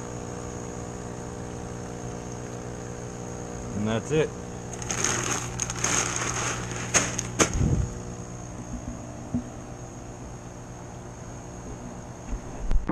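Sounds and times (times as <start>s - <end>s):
electric air pump humming: 0.0s - 12.5s
plastic bag crinkling: 4.7s - 7.6s.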